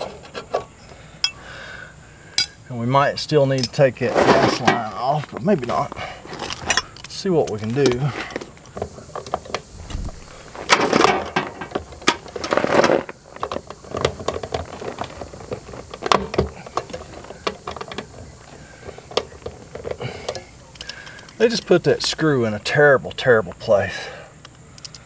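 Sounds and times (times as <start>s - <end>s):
metal tools clicking and scraping: 1.2s - 1.4s, 2.4s - 2.6s, 3.5s - 3.9s, 6.3s - 8.4s, 24.4s - 25.0s.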